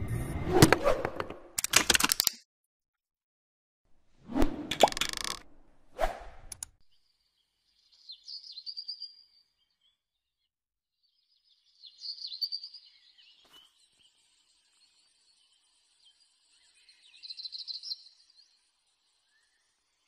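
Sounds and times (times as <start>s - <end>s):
sharp click: 6.4s - 6.7s
small birds twittering: 6.9s - 20.0s.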